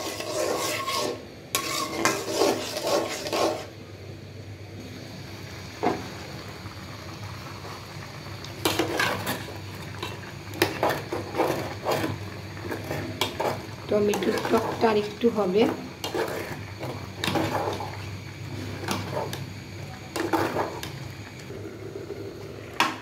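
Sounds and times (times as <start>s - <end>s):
metal spoon scraping pots: 0.0s - 3.7s, 16.0s - 18.0s.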